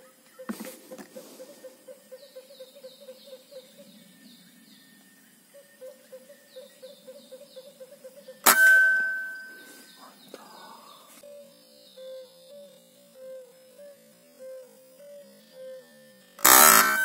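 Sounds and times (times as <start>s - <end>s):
faint chirps: 0.0s - 17.0s
steady pulsing call: 5.3s - 17.0s
air rifle shot with ringing tone: 8.4s - 9.7s.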